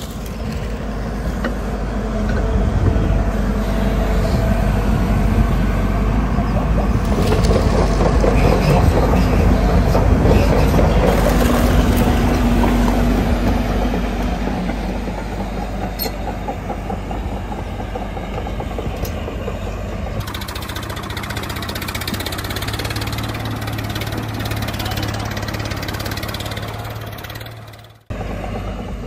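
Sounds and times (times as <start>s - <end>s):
machine motor running: 7.0s - 13.8s, 20.2s - 29.0s
fast even rattle: 20.2s - 28.1s.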